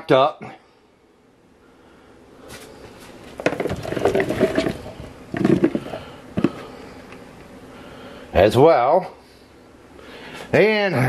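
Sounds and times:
vegetables clattering into a pot: 3.4 - 6.6.

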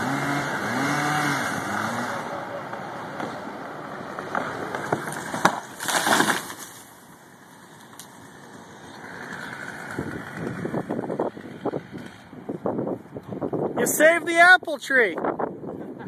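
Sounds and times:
tree trunk cracking: 4.3 - 7.0
tree crashing to the ground: 4.7 - 7.0.

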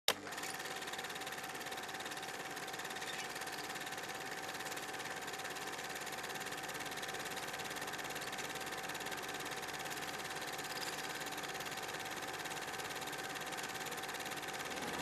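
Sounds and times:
mechanical whirr with whine: 14.4 - 15.0.

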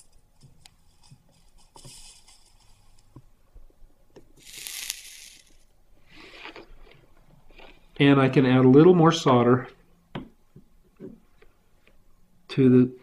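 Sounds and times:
soldering iron crackling: 0.0 - 3.3, 4.4 - 5.7
solder hissing sizzle: 4.4 - 5.7.

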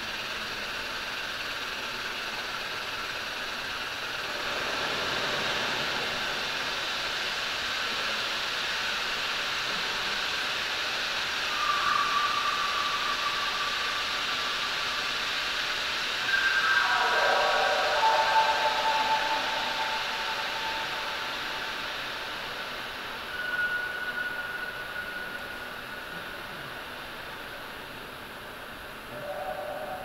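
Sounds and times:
grainy synthesizer noise texture: 9.6 - 30.0
steady high tone: 16.2 - 26.7.

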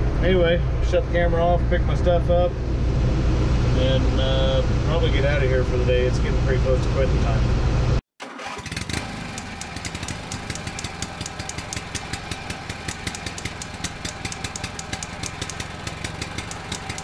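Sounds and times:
engine running: 0.0 - 17.0
rapid clatter of sharp ticks: 9.3 - 17.0.

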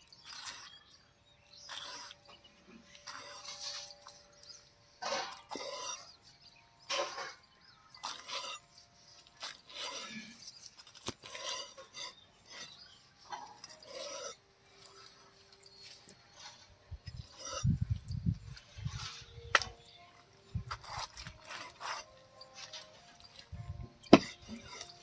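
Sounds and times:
knife slicing on wooden block: 24.1 - 24.9.

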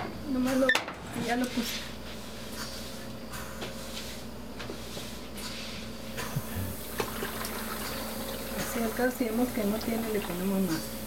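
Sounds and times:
steady low hum: 0.0 - 11.0
water pouring into a pot: 6.8 - 10.9.

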